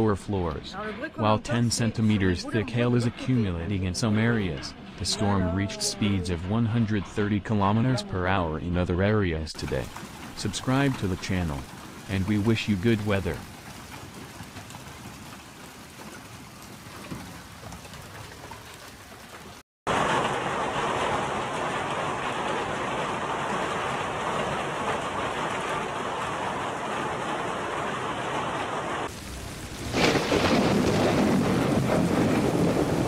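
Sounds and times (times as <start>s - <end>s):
hail and heavy rain pelting: 9.6s - 33.0s.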